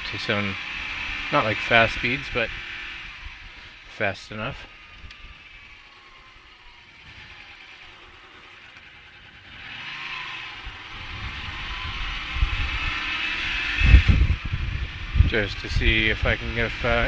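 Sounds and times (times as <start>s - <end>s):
motorcycle engine: 0.0s - 17.0s
wind rush on microphone: 10.6s - 17.0s.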